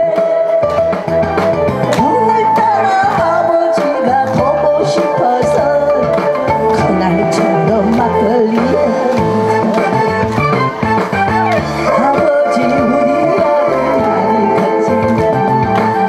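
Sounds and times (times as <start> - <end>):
amplified backing music: 0.0 - 16.0
woman singing into a microphone: 2.0 - 10.2, 11.4 - 16.0.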